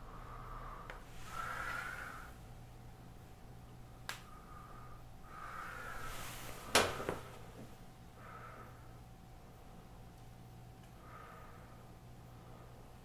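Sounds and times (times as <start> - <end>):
breathing through mask: 0.1 - 2.4.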